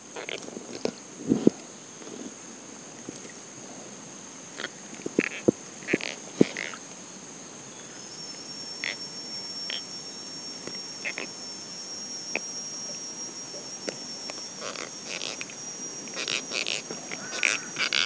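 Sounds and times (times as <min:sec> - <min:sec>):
insects droning: 0:00.0 - 0:18.0
thin insect tone: 0:00.0 - 0:18.0
short chirping calls: 0:12.2 - 0:18.0.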